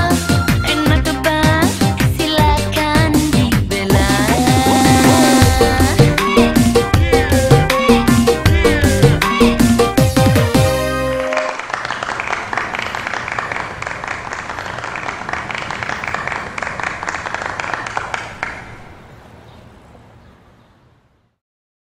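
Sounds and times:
music: 0.0 - 11.6
audience applauding: 11.2 - 18.8.

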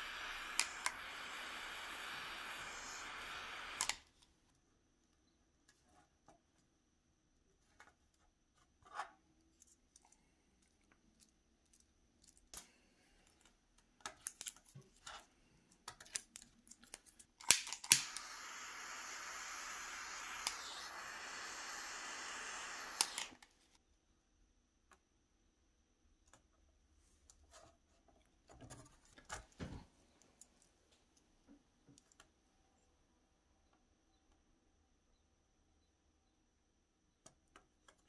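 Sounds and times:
torch hissing: 0.0 - 4.0, 17.5 - 23.4
torch switch click: 0.0 - 4.0, 17.4 - 23.4
torch igniter clicks: 0.0 - 4.1, 17.4 - 23.5.

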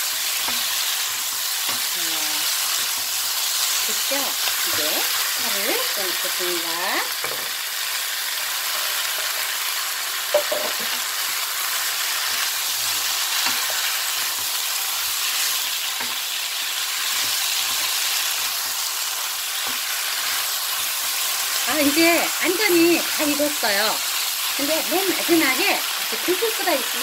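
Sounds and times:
pork and vegetables sizzling: 0.0 - 27.0
spatula knock: 10.3 - 11.0.

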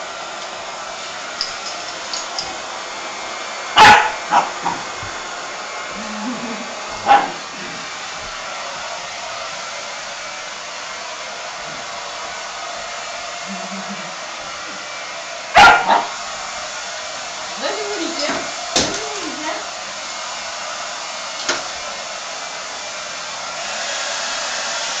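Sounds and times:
hair dryer blowing: 0.0 - 25.0
dog barking: 3.8 - 4.8, 7.0 - 7.4, 15.5 - 16.2.

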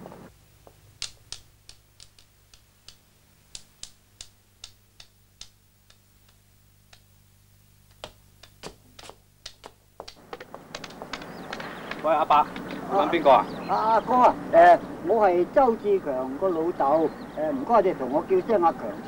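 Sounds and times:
faint steady hum: 0.0 - 19.0
hard-soled footsteps on hard floor: 7.9 - 13.2.

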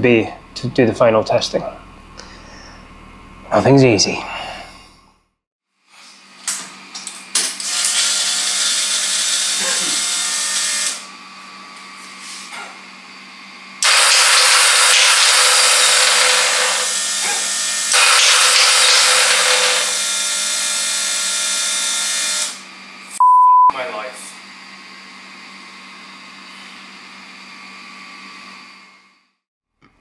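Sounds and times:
electric starter motor whirring: 13.8 - 21.0.

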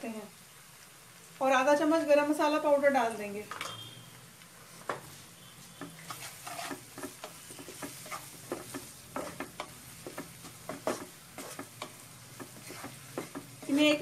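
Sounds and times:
oil sizzling: 0.0 - 14.0
wooden spatula scraping a pan: 5.0 - 14.0.

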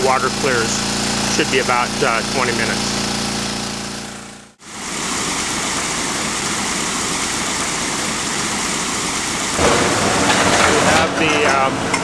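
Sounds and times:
water pump engine humming: 0.0 - 12.0.

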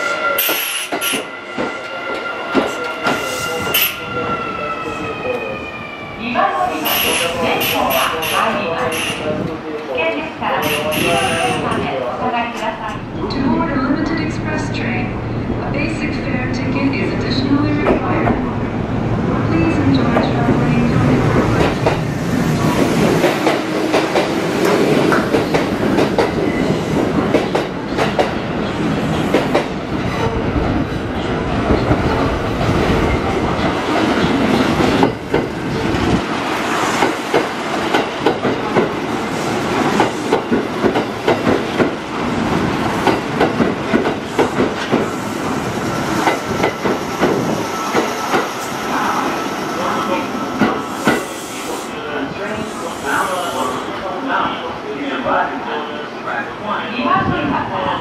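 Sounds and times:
train low rumble: 1.5 - 51.6.

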